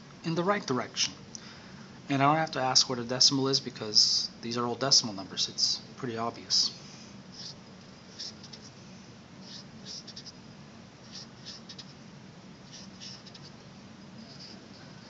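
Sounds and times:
faint low hum: 0.0 - 15.0
felt-tip marker scratching paper: 7.4 - 8.8, 9.4 - 10.4, 11.0 - 12.0, 12.6 - 15.0.

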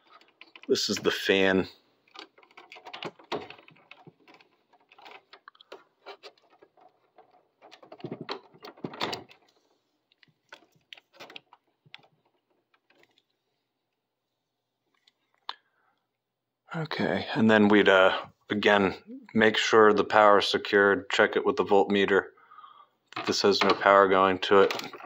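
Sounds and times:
hands handling plastic parts: 0.0 - 14.1, 14.8 - 15.6, 23.1 - 25.0.

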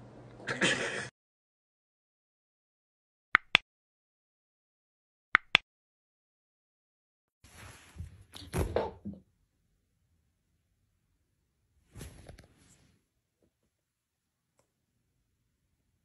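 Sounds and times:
mouse double click: 5.4 - 5.6.

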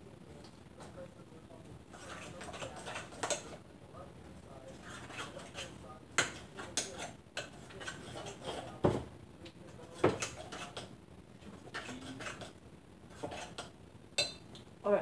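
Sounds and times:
spoon scraping a mixing bowl: 1.9 - 3.6, 4.4 - 14.4.

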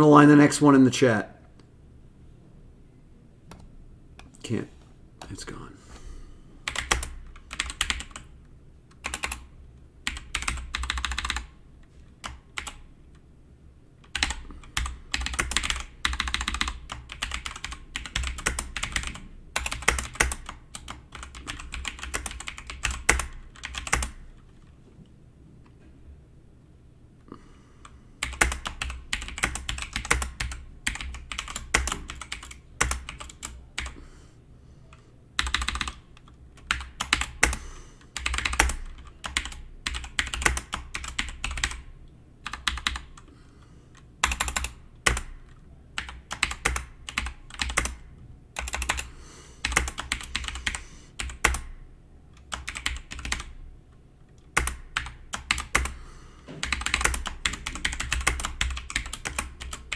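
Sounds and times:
fast keyboard typing: 6.6 - 11.6, 12.2 - 12.9, 14.0 - 24.4, 28.2 - 34.0, 35.4 - 43.3, 44.0 - 51.8, 52.4 - 53.6, 54.4 - 56.0, 56.6 - 59.9.

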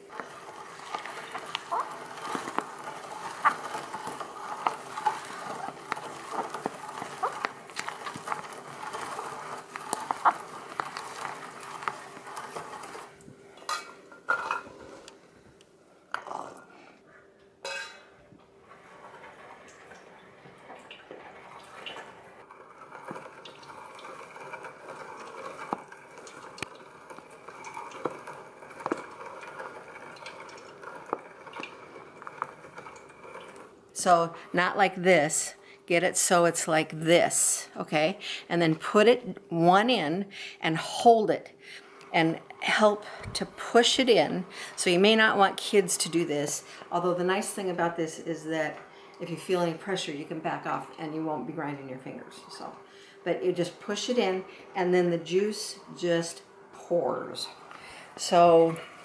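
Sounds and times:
food chopper grinding berries: 0.0 - 13.4, 21.2 - 35.2.

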